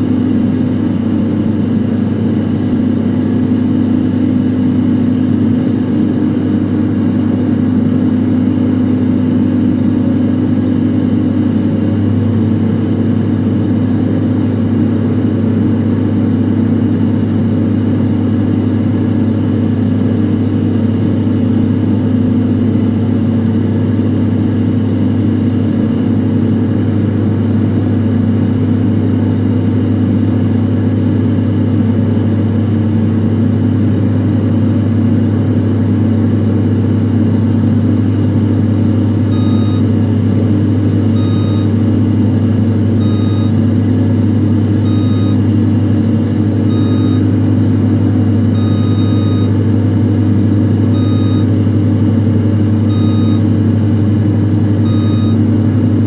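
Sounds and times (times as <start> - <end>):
short high-pitched electronic beep: 39.3 - 39.8, 41.2 - 41.7, 43.0 - 43.6, 44.9 - 45.4, 46.7 - 47.2, 48.6 - 49.5, 51.0 - 51.5, 52.9 - 53.4, 54.9 - 55.4
whining tones: 39.3 - 39.8, 41.2 - 41.7, 43.0 - 43.6, 44.9 - 45.4, 46.7 - 47.2, 48.6 - 49.5, 51.0 - 51.5, 52.9 - 53.4, 54.9 - 55.4
server cooling fans humming: 39.3 - 39.9, 41.2 - 41.8, 43.0 - 43.6, 44.9 - 45.4, 46.7 - 47.2, 48.6 - 49.5, 51.0 - 51.5, 52.9 - 53.5, 54.9 - 55.4.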